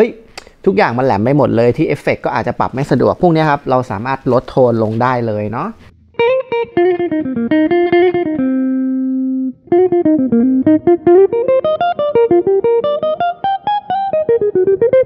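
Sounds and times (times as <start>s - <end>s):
distorted electric guitar: 5.8s - 15.0s.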